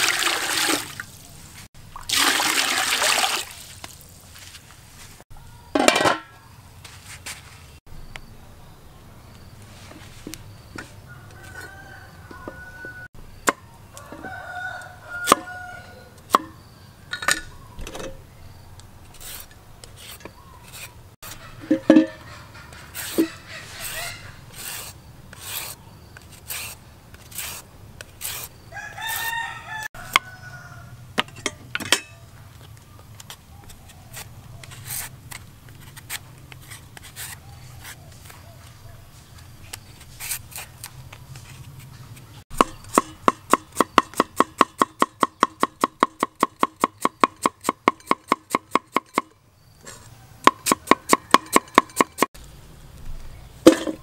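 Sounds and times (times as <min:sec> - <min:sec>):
rooster crowing: 0:11.0 - 0:13.1, 0:13.9 - 0:16.2, 0:28.7 - 0:31.0, 0:50.1 - 0:51.9
peeler scraping vegetables: 0:19.0 - 0:29.3, 0:34.1 - 0:38.4, 0:39.6 - 0:52.3
cleaver chopping on wooden board: 0:42.5 - 0:49.3, 0:50.5 - 0:52.3.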